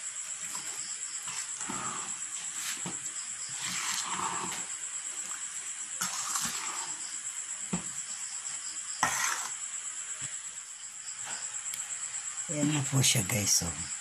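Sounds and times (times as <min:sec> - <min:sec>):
metal spoon stirring batter: 0:03.3 - 0:07.0, 0:09.0 - 0:09.6.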